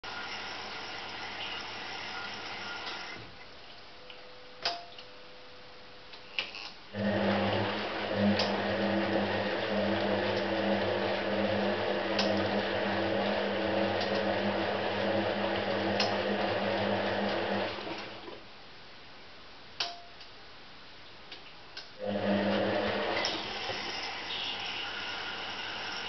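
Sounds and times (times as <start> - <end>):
washing machine motor humming: 0.0 - 3.8, 6.9 - 18.4, 22.0 - 26.0
sharp click: 19.8 - 20.3.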